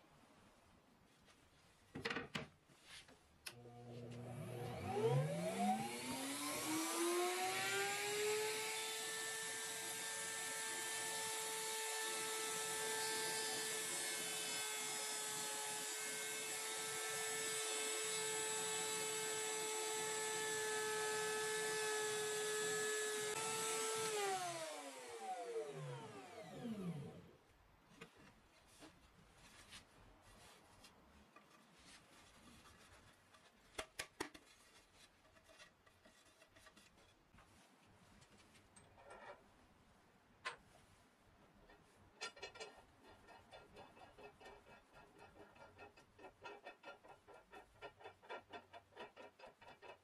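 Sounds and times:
router motor whining: 3.6 - 27.2.

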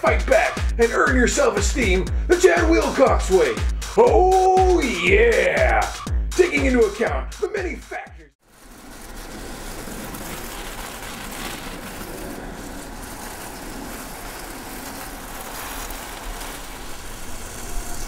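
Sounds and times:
water spraying from hose nozzle: 8.4 - 18.0.

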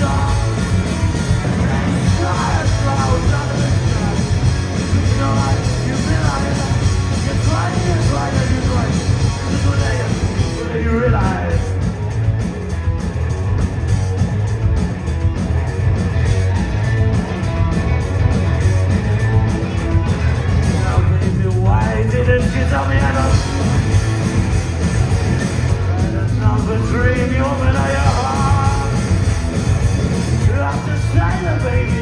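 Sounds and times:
person singing: 0.0 - 0.8, 1.4 - 11.8, 26.0 - 29.2, 30.4 - 32.0
bass guitar: 0.0 - 32.0
drums: 0.0 - 32.0
electric guitars: 0.0 - 32.0.

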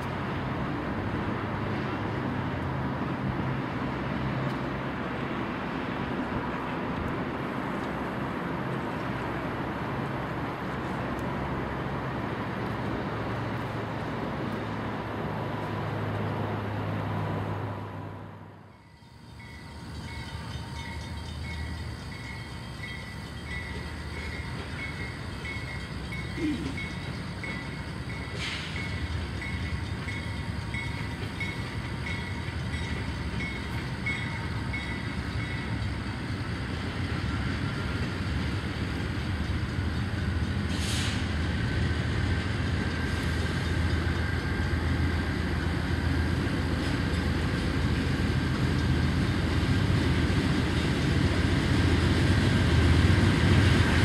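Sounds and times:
diesel locomotive engine rumble: 0.0 - 54.0
crossing bell dinging: 18.7 - 37.2.

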